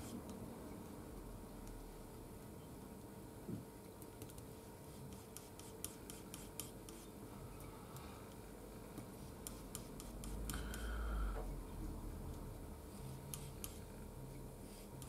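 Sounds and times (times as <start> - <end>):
faint steady hum: 0.0 - 15.0
paintbrush scraping on palette: 9.2 - 10.8.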